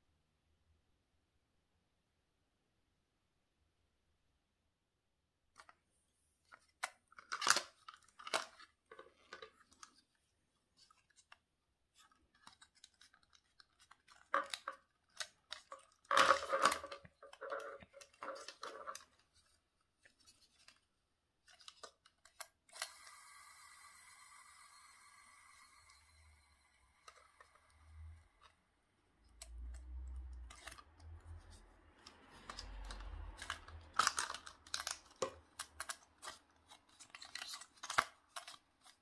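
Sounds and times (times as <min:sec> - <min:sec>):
plastic toy parts clicking and rattling: 0:06.5 - 0:10.1, 0:10.8 - 0:23.1, 0:29.3 - 0:39.0.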